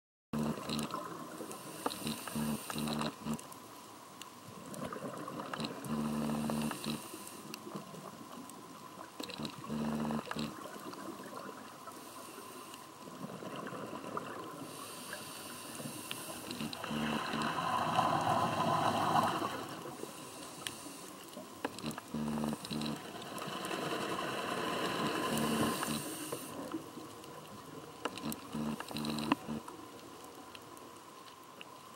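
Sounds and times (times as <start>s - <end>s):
diver breathing through a regulator: 0.4s - 3.4s, 5.5s - 7.6s, 9.2s - 10.6s, 11.8s - 13.0s, 14.6s - 26.8s, 28.1s - 29.6s
gurgling exhaled bubbles: 16.5s - 20.0s.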